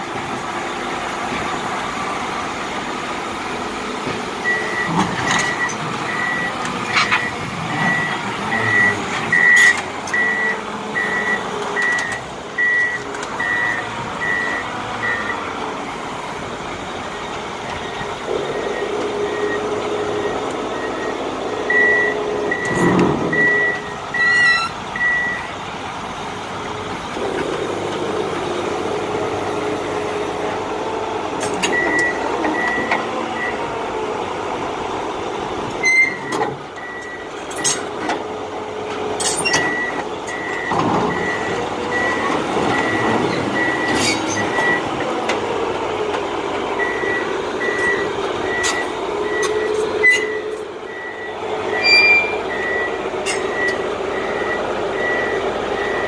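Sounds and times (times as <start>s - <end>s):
reversing alarm beeping: 4.4s - 15.4s, 18.4s - 25.5s, 31.7s - 33.6s, 39.4s - 45.0s, 46.8s - 56.0s.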